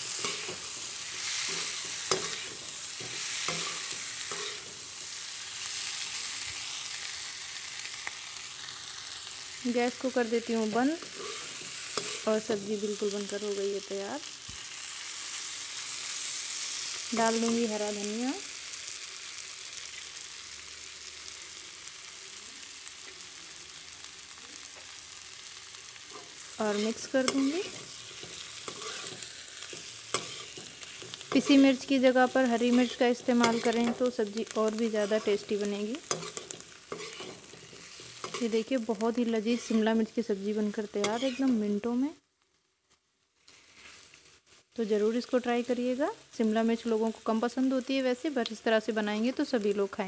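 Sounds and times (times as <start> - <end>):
spatula scraping pan: 0.0 - 5.2, 10.6 - 12.4, 26.1 - 31.9, 32.5 - 34.1, 34.9 - 38.6, 41.0 - 41.6
vegetables sizzling in pan: 0.0 - 50.0.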